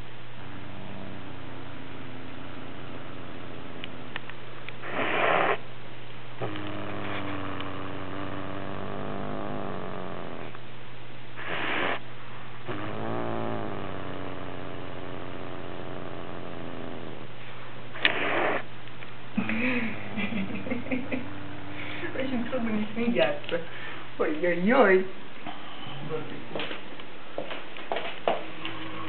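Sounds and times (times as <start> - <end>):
cat growling low: 0.4 - 4.2, 4.8 - 5.6, 6.4 - 10.6, 11.4 - 12.0, 12.6 - 17.4
cat huffing: 4.8 - 5.6, 11.4 - 12.0, 18.0 - 18.7.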